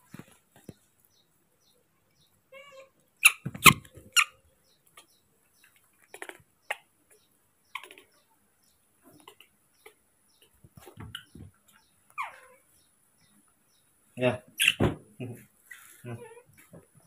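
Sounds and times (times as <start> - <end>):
baby monkey squeaking: 2.6 - 4.4, 7.7 - 8.2, 11.1 - 11.4, 12.2 - 12.6, 14.6 - 14.9.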